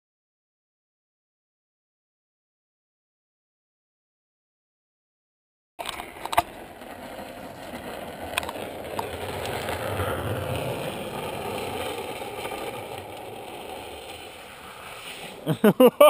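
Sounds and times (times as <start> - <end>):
trike wheels rolling on asphalt: 5.8 - 16.0.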